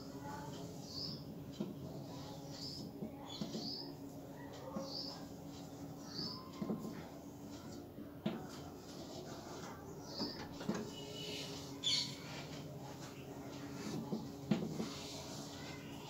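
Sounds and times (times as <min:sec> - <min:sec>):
chalk scratching on blackboard: 0:10.9 - 0:16.0.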